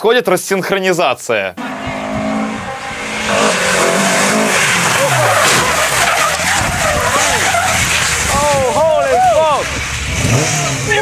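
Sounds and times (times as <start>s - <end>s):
rally car engine: 1.6s - 11.0s
tyres skidding on wet tarmac: 2.3s - 11.0s.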